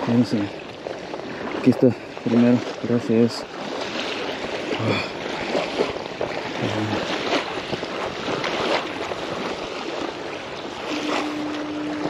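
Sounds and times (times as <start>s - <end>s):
water: 0.0s - 12.0s
wind on microphone: 0.0s - 12.0s.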